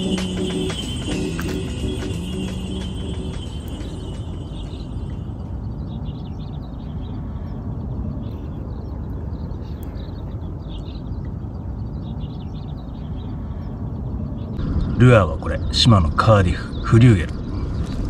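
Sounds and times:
background music: 0:00.0 - 0:05.6
small birds chirping: 0:00.0 - 0:18.0
wind: 0:00.0 - 0:18.0.

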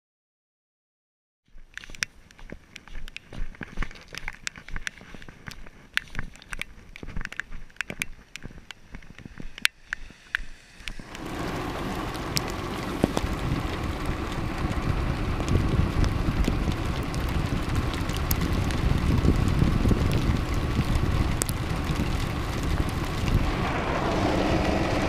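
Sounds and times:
car on wet road: 0:10.8 - 0:25.0
hail ticking on camera: 0:11.0 - 0:25.0.

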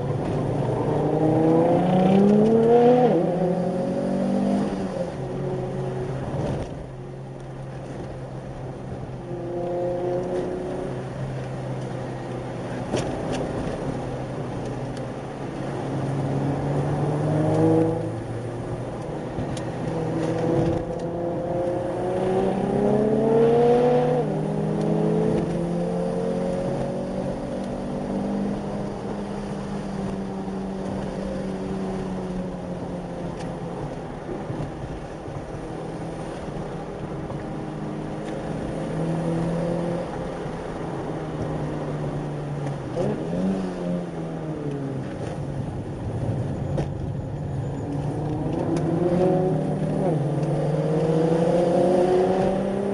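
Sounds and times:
car engine: 0:00.0 - 0:52.9
tyre and road noise: 0:00.0 - 0:52.9.

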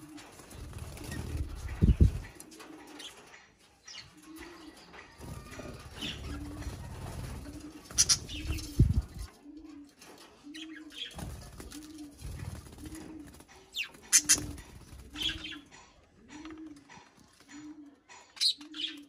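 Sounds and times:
wings fluttering: 0:00.0 - 0:03.4, 0:04.0 - 0:17.6
dove cooing: 0:00.0 - 0:19.0
budgerigars chirping: 0:08.0 - 0:08.6.

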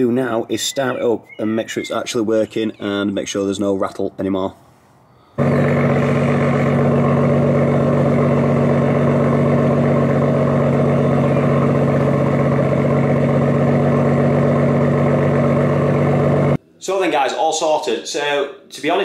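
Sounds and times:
car engine idling: 0:05.4 - 0:16.6.

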